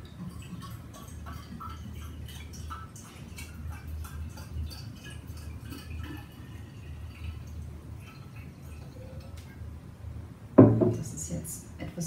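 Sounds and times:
water pouring into a bottle: 0.0 - 9.6.

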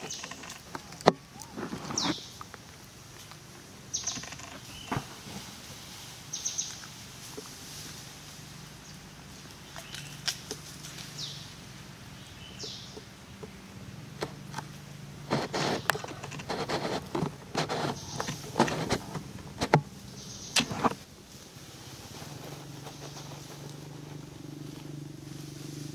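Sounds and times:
sharp clicking and rustling: 0.0 - 5.7, 9.4 - 11.3, 14.2 - 21.1, 21.9 - 25.0
steady low hum: 4.8 - 25.9.

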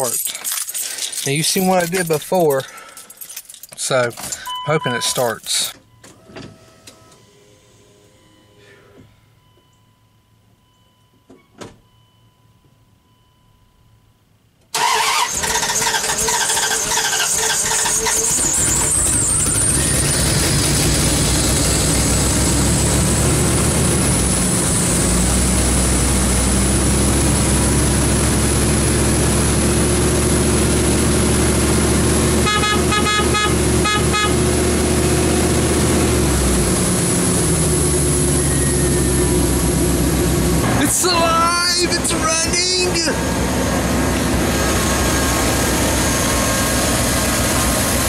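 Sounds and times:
truck engine running: 14.8 - 48.0
high whine: 36.6 - 48.0.

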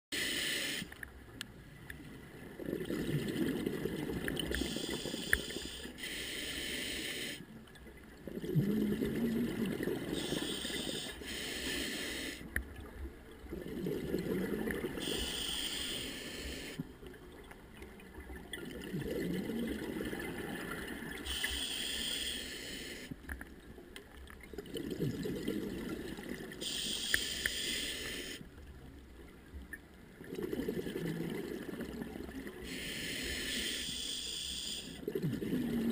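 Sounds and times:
regulator hiss on inhalation: 0.2 - 1.0, 4.5 - 7.5, 10.1 - 12.5, 15.0 - 16.8, 21.2 - 23.2, 26.6 - 28.5, 32.6 - 35.0
bubbling gurgle of exhaled air: 2.4 - 5.8, 8.2 - 11.2, 12.8 - 16.8, 18.0 - 21.7, 24.5 - 26.9, 30.2 - 32.9, 34.9 - 35.9.

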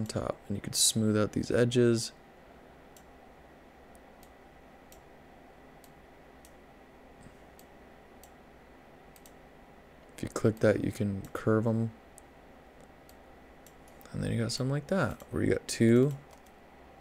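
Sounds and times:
low room hiss: 0.0 - 17.0
faint computer mouse clicks: 9.1 - 9.4, 16.0 - 16.6.

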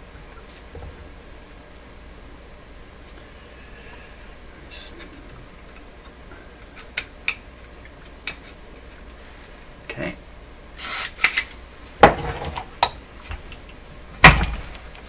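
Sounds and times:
aerosol can hiss: 10.8 - 11.2.

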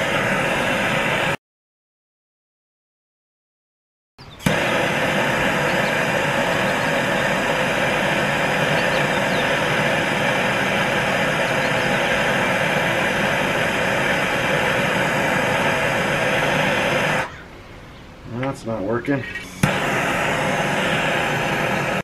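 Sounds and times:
gas torch hissing: 0.0 - 1.4, 4.4 - 17.3, 19.1 - 22.0.

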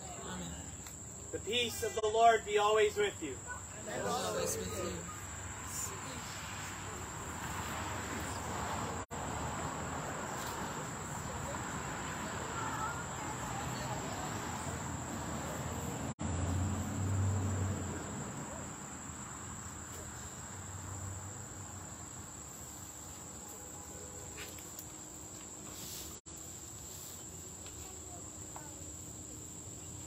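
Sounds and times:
murmur of voices: 0.0 - 7.1
insects chirring: 0.0 - 30.0.

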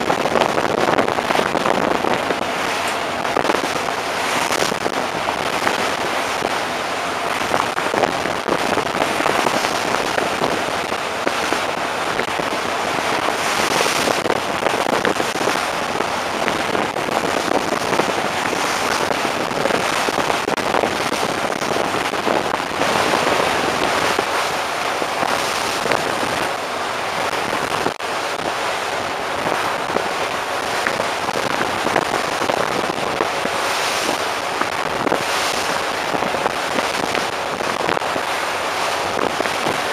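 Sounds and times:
sea water rushing along a hull: 0.0 - 39.9.

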